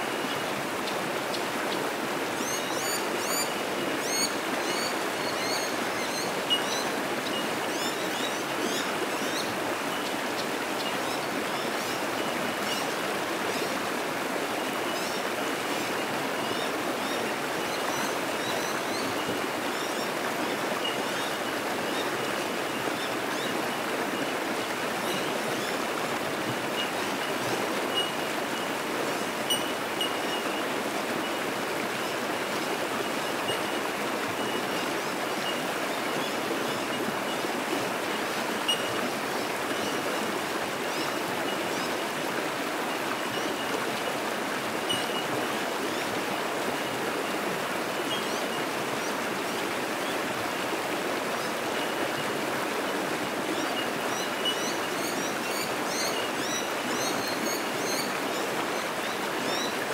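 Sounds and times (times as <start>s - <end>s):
water rushing over rocks: 0.0s - 59.9s
bird tink notes: 29.5s - 30.5s.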